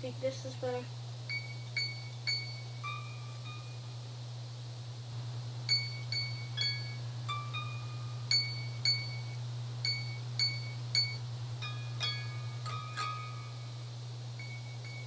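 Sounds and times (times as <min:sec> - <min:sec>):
low electrical hum: 0:00.0 - 0:15.0
electric guitar plinking notes: 0:01.3 - 0:03.9, 0:05.7 - 0:15.0.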